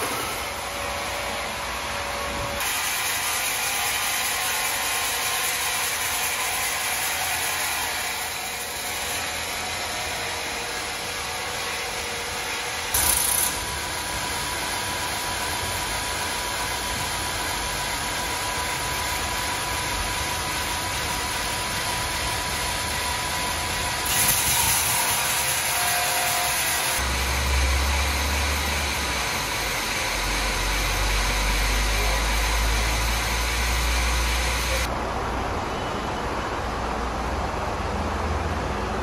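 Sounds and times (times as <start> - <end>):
sawmill machinery whirring: 0.0 - 34.9.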